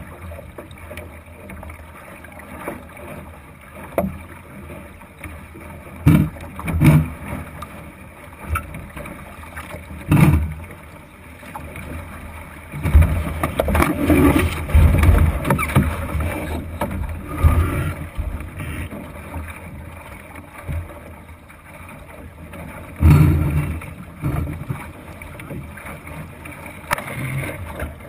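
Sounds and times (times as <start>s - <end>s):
water noise: 0.0s - 28.0s
thumps on boat hull: 6.0s - 7.2s, 10.1s - 10.6s
knocks and low rumbling: 12.8s - 19.1s, 22.9s - 24.9s.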